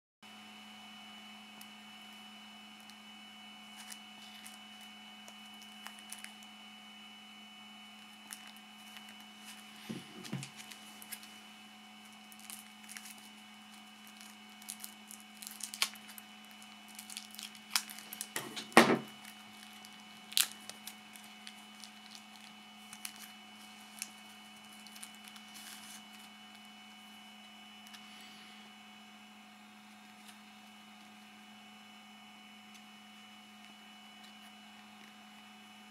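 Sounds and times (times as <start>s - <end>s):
faint steady hum: 0.3s - 35.9s
plastic packaging crinkling: 3.7s - 6.5s, 8.0s - 11.4s, 12.0s - 27.0s.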